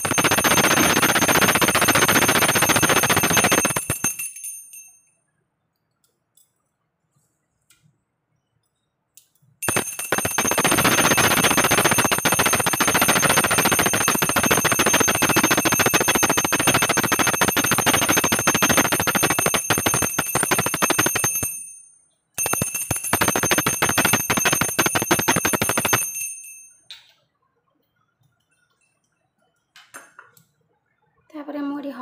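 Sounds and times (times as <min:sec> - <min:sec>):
brass hand bell ringing: 0:09.6 - 0:26.7.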